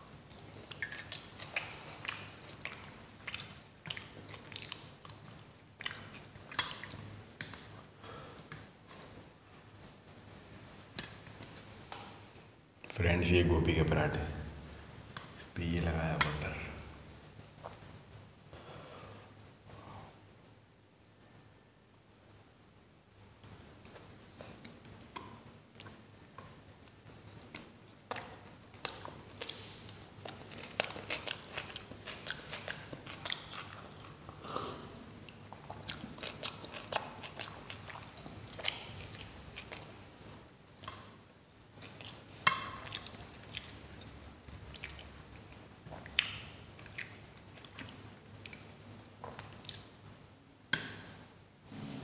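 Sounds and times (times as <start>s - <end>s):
person chewing food: 0.0s - 12.9s, 23.4s - 50.0s.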